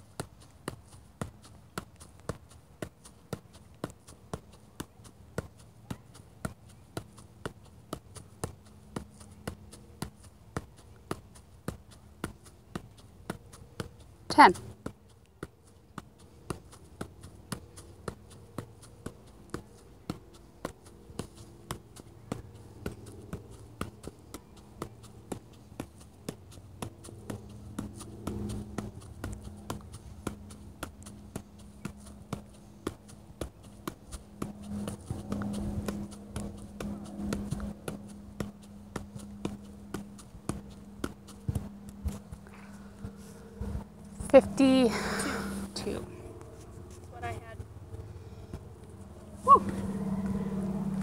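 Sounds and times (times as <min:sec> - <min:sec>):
ball taps on foot: 0:00.1 - 0:43.2
low hum: 0:34.0 - 0:51.0.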